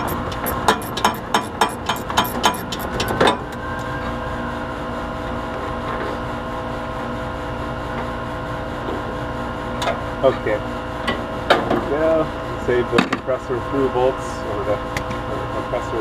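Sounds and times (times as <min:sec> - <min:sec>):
socket ratchet clicking: 0:00.0 - 0:03.2
machinery drone: 0:00.0 - 0:06.0.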